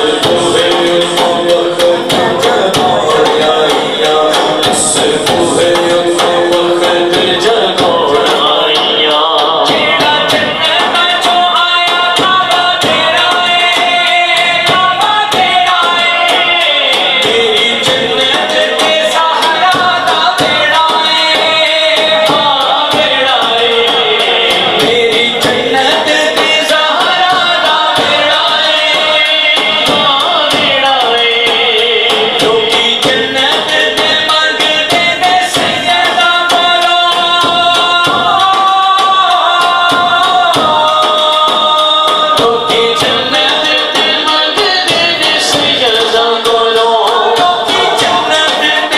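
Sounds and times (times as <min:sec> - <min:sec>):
frame drum beaten fast: 0:00.0 - 0:48.9
man singing into a microphone: 0:00.0 - 0:48.9.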